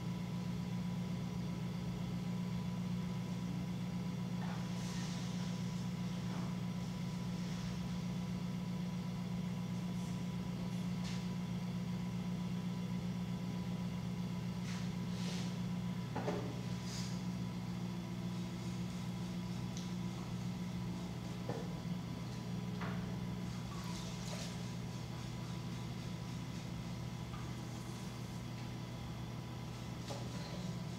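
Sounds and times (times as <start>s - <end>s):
potter's wheel motor humming: 11.5s - 30.9s.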